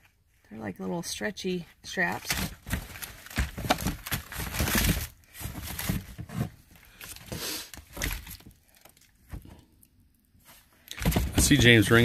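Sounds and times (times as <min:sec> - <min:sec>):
packaging rustling: 0:02.2 - 0:09.5, 0:10.9 - 0:12.0.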